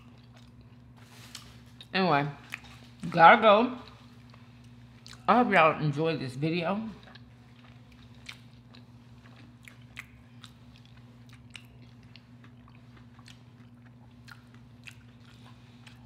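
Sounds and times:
closed-mouth chewing: 7.0 - 16.0.

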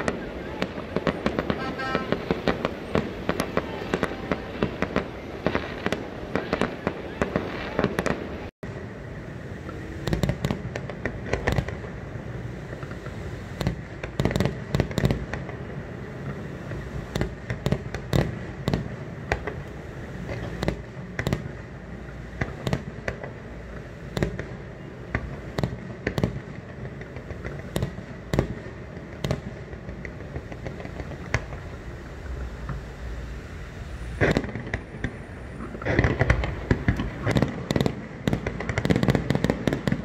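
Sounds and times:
steady background noise: 0.0 - 40.0
sharp cracks and bangs: 34.1 - 40.0.

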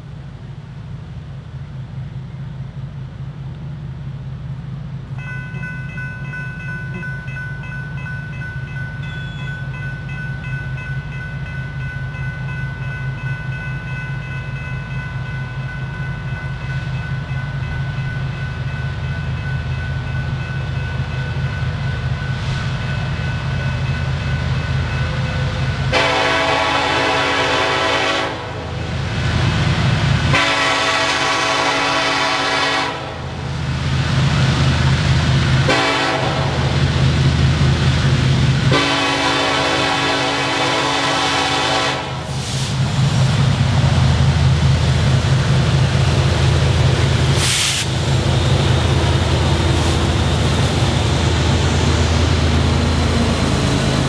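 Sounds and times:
diesel train engine rumble: 0.0 - 54.0
crossing warning bell ringing: 5.1 - 28.1
train horn blasts: 25.9 - 28.8, 30.3 - 33.4, 35.6 - 36.8, 38.7 - 42.4.

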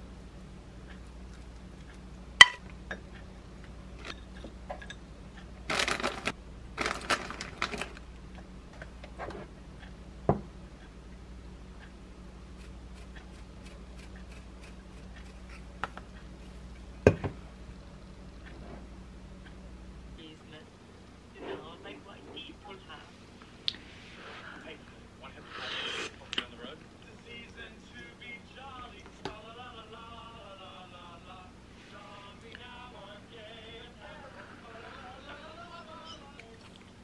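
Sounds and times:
cheese rustling over rice: 5.6 - 8.1, 12.5 - 15.8
dish set down knock: 17.0 - 17.4.

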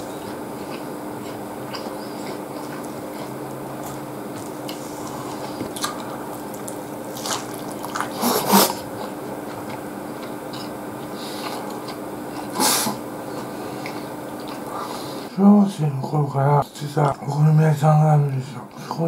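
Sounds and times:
person chewing wetly: 0.0 - 14.8.

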